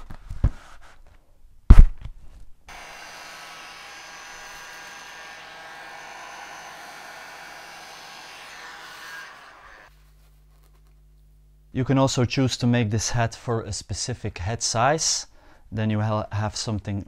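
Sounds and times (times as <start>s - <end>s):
heat gun fan blowing: 2.7s - 9.9s.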